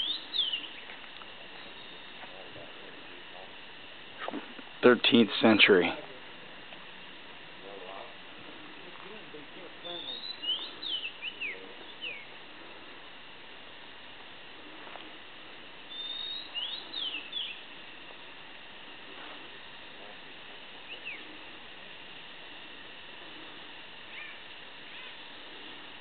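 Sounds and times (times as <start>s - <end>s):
bird calls: 0.0s - 2.3s, 9.8s - 12.8s, 15.8s - 17.8s, 20.8s - 21.6s, 23.2s - 25.8s
steady background hiss: 0.0s - 26.0s.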